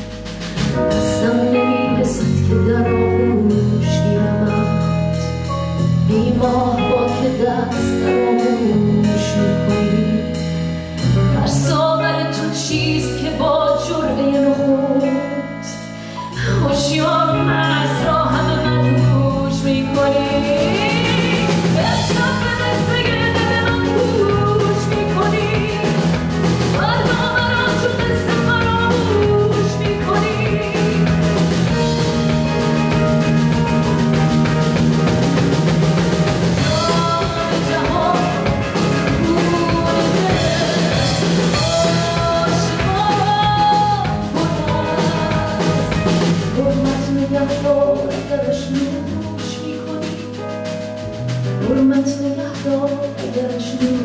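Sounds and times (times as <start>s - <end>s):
steady drum beat: 0.0s - 1.4s, 17.0s - 54.0s
woman singing: 0.8s - 10.6s, 11.2s - 33.0s, 36.4s - 50.8s, 51.6s - 54.0s.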